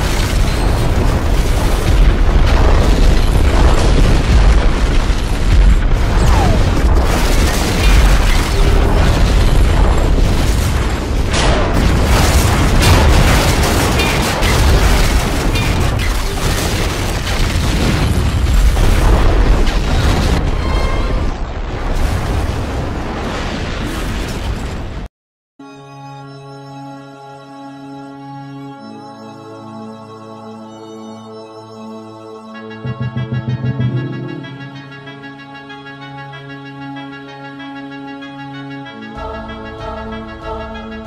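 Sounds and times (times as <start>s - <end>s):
sharp crack: 0.0s - 20.5s
deep rumble: 0.0s - 23.1s, 32.7s - 35.0s
heavy explosions: 0.0s - 25.1s, 32.6s - 35.1s
music: 25.6s - 41.0s.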